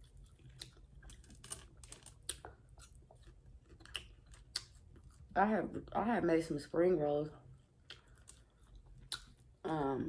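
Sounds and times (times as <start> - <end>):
chewing steak: 0.0 - 5.3, 7.5 - 9.6.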